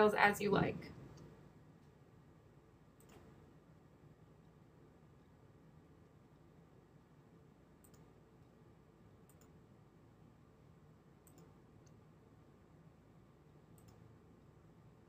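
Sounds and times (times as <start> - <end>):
low steady hum: 0.0 - 15.0
computer mouse clicks: 3.0 - 3.4, 7.8 - 8.2, 9.2 - 9.6, 11.2 - 12.0, 13.7 - 14.1.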